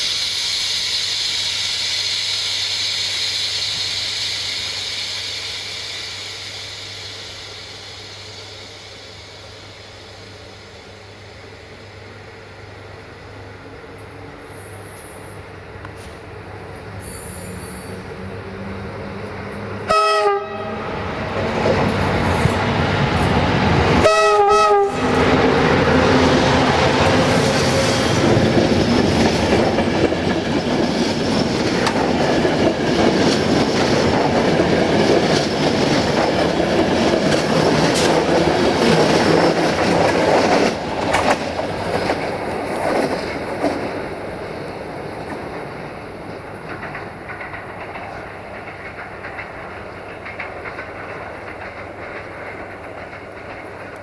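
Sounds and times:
locomotive horn blasts: 19.9s - 20.9s, 24.0s - 25.2s
train wheels clattering over rail joints: 25.0s - 54.0s.

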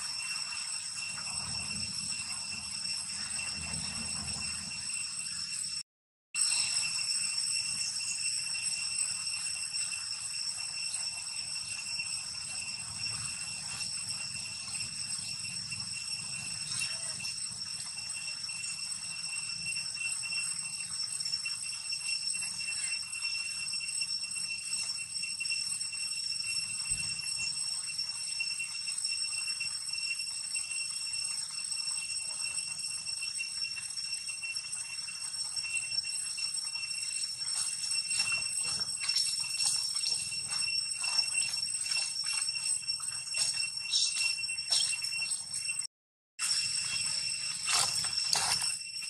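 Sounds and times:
high-pitched insect drone: 0.0s - 49.0s
dry leaves crackling underfoot: 47.0s - 48.7s.

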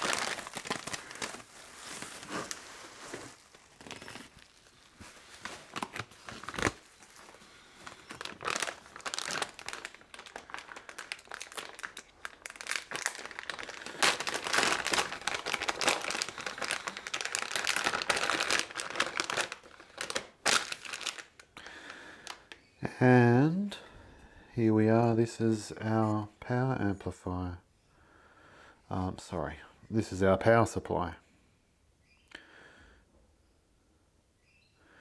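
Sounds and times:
plastic packaging crinkling: 0.0s - 22.7s.

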